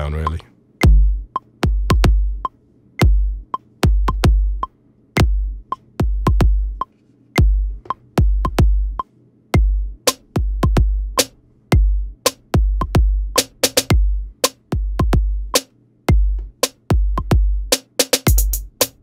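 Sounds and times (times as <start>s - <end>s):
metronome clicking: 0.0s - 5.9s
electronic kick drum thuds: 0.0s - 19.0s.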